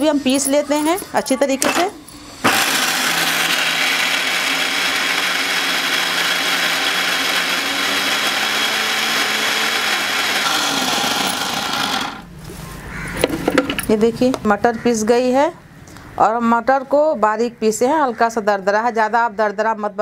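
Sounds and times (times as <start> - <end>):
electric mixer grinder running: 2.4 - 12.3.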